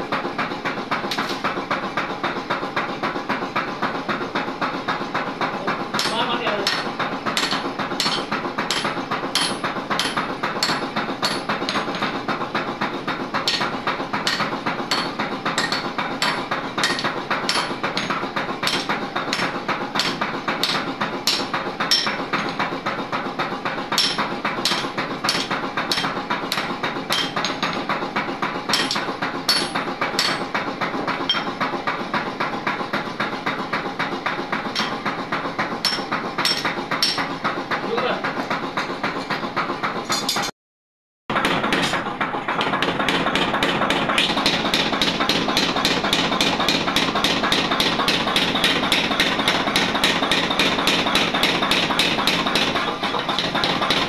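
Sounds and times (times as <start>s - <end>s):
workshop noise: 0.0s - 40.6s, 41.3s - 54.0s
hammer striking metal on anvil: 5.7s - 31.7s, 34.6s - 37.4s, 42.6s - 54.0s.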